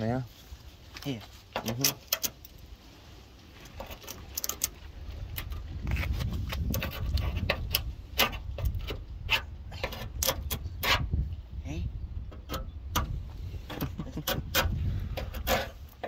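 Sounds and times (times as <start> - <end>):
chisel scraping metal: 5.9 - 11.2, 12.4 - 16.0.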